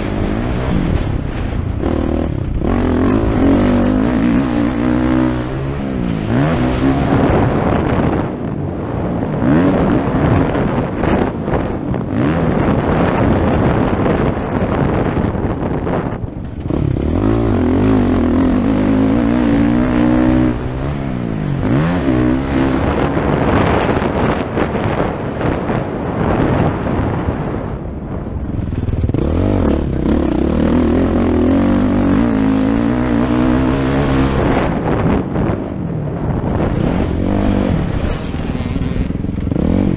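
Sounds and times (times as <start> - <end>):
motocross bike engine revving: 0.0 - 8.3, 9.3 - 15.1, 15.9 - 25.2, 28.6 - 35.6, 36.2 - 39.9.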